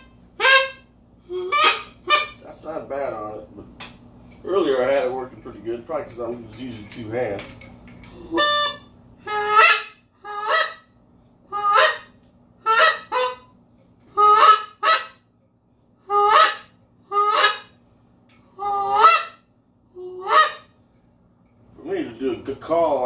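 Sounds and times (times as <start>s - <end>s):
goose call honks: 8.3s - 10.9s, 11.5s - 13.5s, 14.1s - 15.2s, 16.1s - 17.8s, 18.6s - 19.4s, 20.0s - 20.7s.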